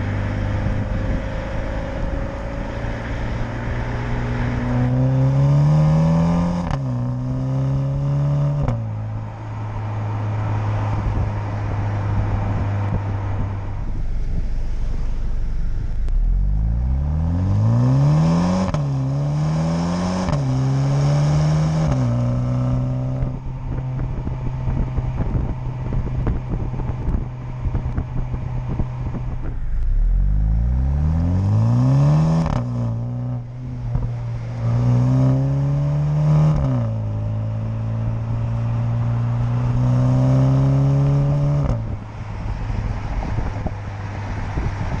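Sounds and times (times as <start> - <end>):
car engine accelerating hard: 0.0 - 45.0
road noise: 0.0 - 45.0
wind buffeting: 9.6 - 16.7, 22.1 - 30.6, 41.8 - 45.0.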